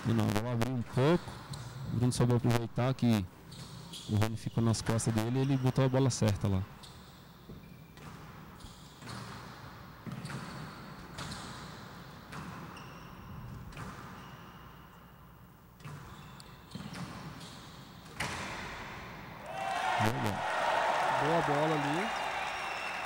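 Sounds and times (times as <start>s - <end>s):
shoes squeaking on court: 3.4s - 6.1s, 6.7s - 15.2s, 15.8s - 18.4s.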